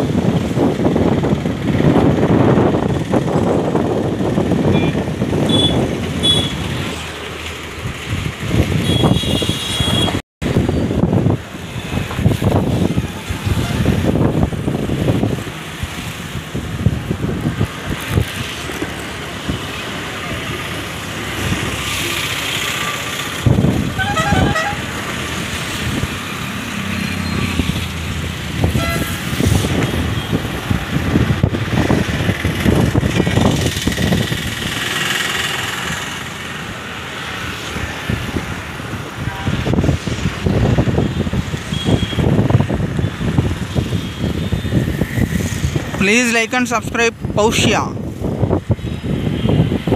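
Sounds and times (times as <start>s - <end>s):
wind buffeting microphone: 0.0s - 21.9s, 23.2s - 46.1s, 47.1s - 49.9s
road vehicles: 0.0s - 49.9s
vehicle horn toot: 4.7s - 6.6s, 8.8s - 10.2s, 24.0s - 24.9s, 28.7s - 29.2s, 41.7s - 42.2s.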